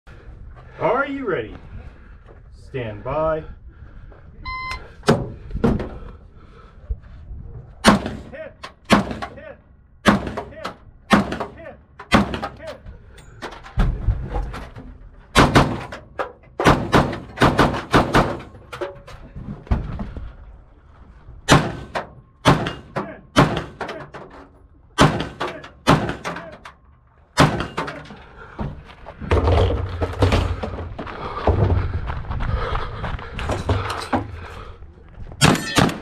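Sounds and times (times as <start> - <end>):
footsteps: 27.9 - 36.0.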